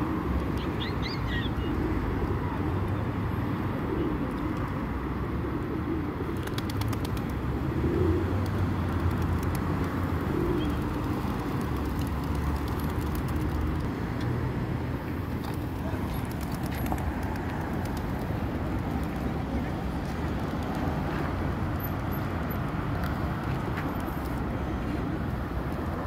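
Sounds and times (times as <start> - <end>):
road traffic rumble: 0.0 - 26.0
pigeons cooing: 3.7 - 4.6, 5.3 - 8.6, 10.0 - 11.3.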